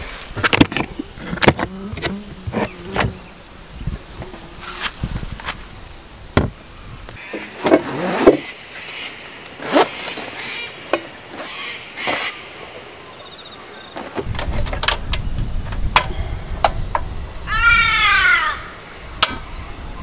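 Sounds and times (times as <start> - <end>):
canvas bag rustling: 7.2 - 8.8, 9.6 - 12.4.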